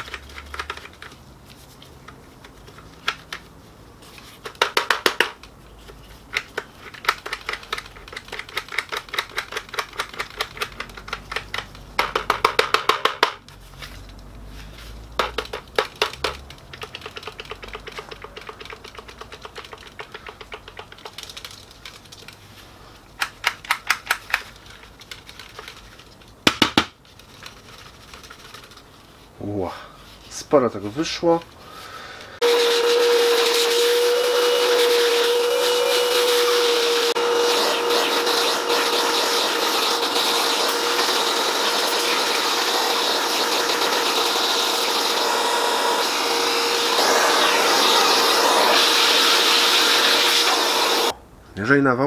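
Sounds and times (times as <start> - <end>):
plastic gears clicking: 6.3 - 12.3.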